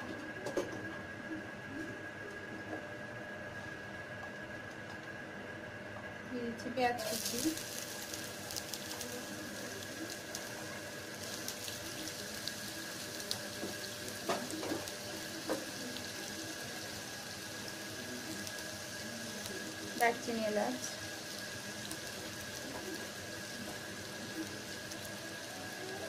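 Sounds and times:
onions sizzling in oil: 0:06.7 - 0:26.0.

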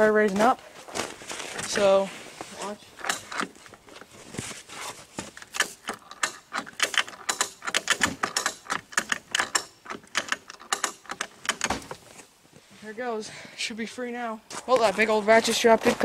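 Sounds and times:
ratchet strap clicking: 0:03.0 - 0:03.5, 0:05.3 - 0:11.8.

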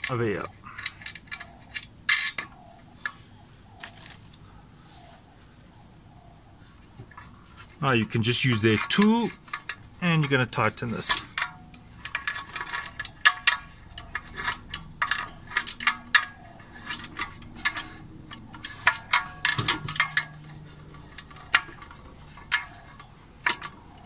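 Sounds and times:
metallic clicks of tightening nuts: 0:08.4 - 0:24.0.

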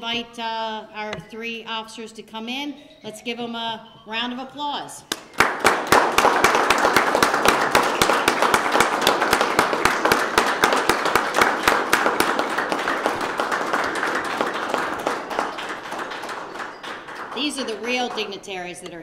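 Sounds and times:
audience applauding: 0:05.1 - 0:18.4.

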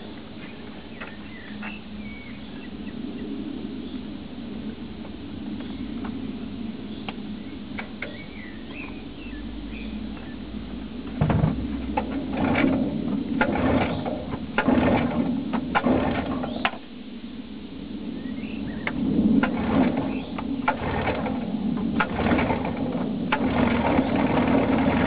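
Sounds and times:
birds chirping faintly: 0:00.0 - 0:25.0
outboard engine cranking: 0:11.6 - 0:16.8, 0:19.4 - 0:25.0.

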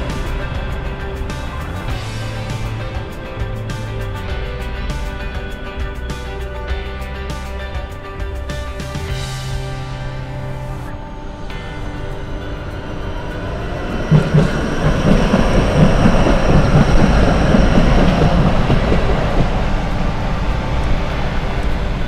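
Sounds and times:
tram wheels rumbling on rails: 0:00.0 - 0:06.6, 0:12.4 - 0:22.0.

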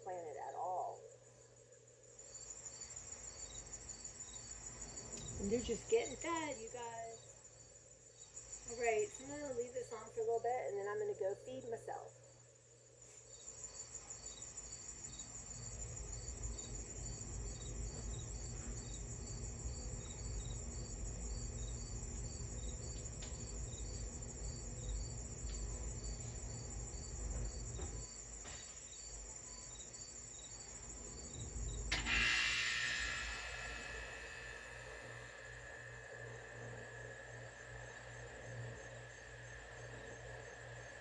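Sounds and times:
insect chirping: 0:00.0 - 0:41.0
insect high trill: 0:00.0 - 0:41.0
low rumble: 0:31.4 - 0:41.0
rushing noise: 0:31.9 - 0:41.0.

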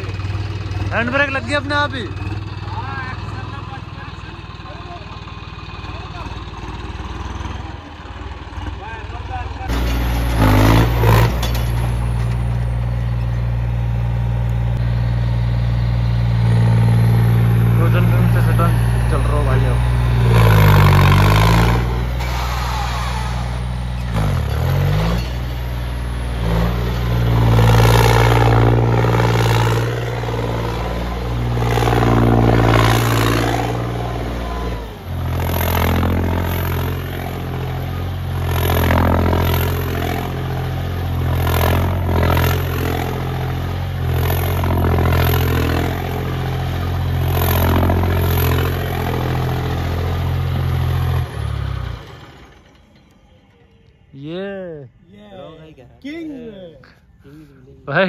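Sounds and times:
tractor diesel engine revving: 0:00.0 - 0:54.0.

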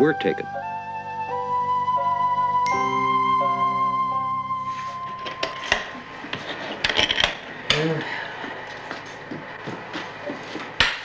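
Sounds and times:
metal latches clicking and knocking: 0:06.7 - 0:07.9.

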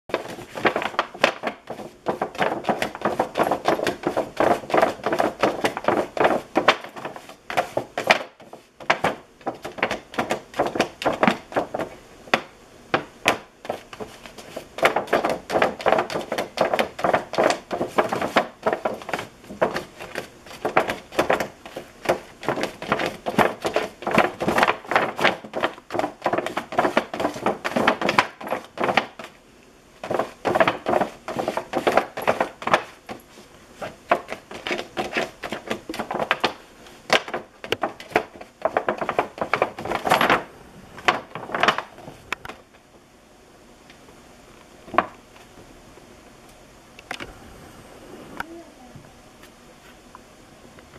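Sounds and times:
cat scratching at plastic and door: 0:00.1 - 0:29.4, 0:30.0 - 0:33.2, 0:33.8 - 0:40.4.

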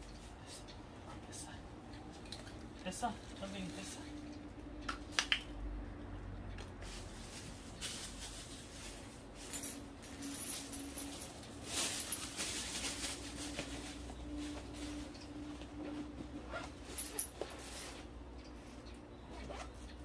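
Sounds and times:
plastic bag rustling: 0:06.8 - 0:15.1.

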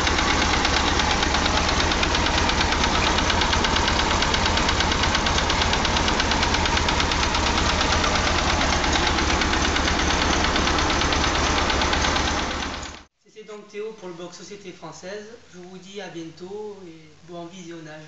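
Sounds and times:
tractor engine running: 0:00.0 - 0:13.1.

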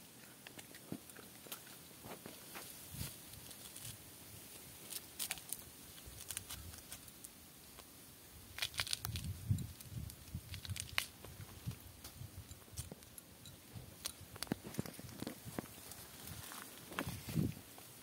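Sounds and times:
dry leaves tearing and crackling: 0:02.6 - 0:12.1.

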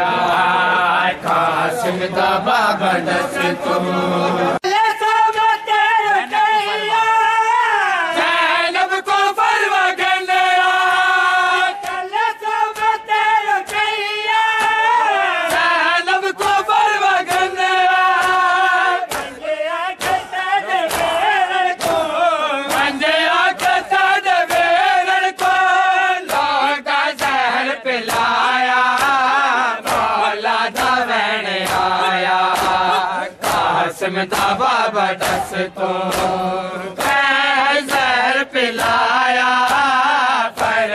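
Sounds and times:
men chanting in unison: 0:00.0 - 0:40.9
chest-beating slaps: 0:17.3 - 0:40.9.

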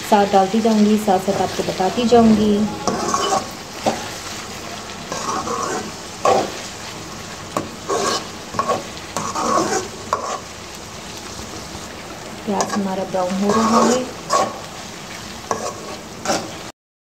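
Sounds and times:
onions sizzling in oil: 0:00.0 - 0:16.7
spoon scraping a pan: 0:02.0 - 0:04.2, 0:05.1 - 0:06.7, 0:07.6 - 0:10.5, 0:12.6 - 0:14.7, 0:15.4 - 0:16.7.

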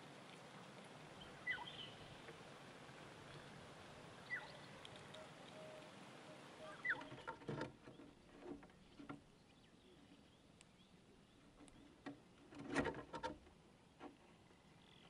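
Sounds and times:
faint outdoor hiss: 0:00.0 - 0:15.0
downward-sliding bird chirp: 0:06.7 - 0:07.3.

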